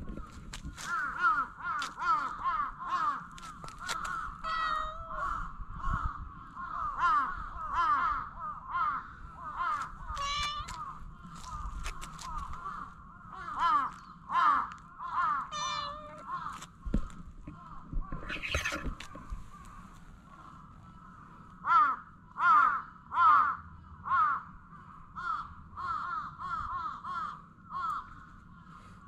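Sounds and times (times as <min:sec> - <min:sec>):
cat meowing: 0:04.5 - 0:05.2, 0:10.1 - 0:10.8, 0:15.5 - 0:16.3.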